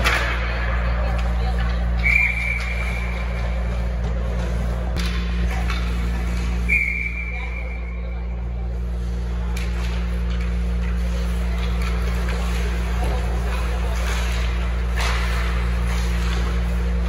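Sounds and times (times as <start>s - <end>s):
distant crowd voices: 0.0s - 17.0s
steady low hum: 0.0s - 17.0s
referee whistle blast: 6.7s - 7.7s.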